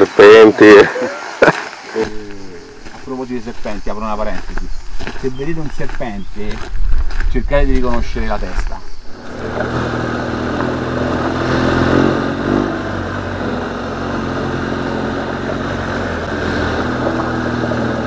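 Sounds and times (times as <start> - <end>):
motorcycle engine revving: 2.0 - 4.6, 9.1 - 18.0
steady rushing noise: 2.0 - 14.6.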